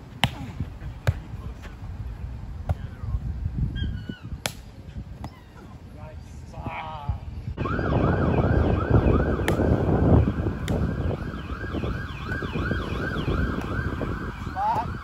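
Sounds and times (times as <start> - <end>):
sharp smacks: 4.4 - 4.7
siren yelping: 7.6 - 15.0.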